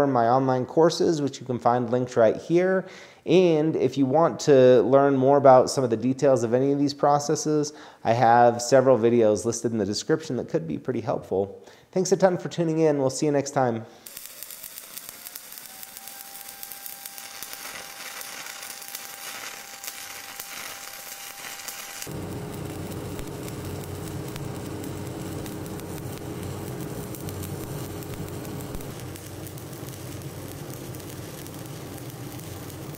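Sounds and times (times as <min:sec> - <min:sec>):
welding arc crackling sizzle: 0:14.0 - 0:32.9.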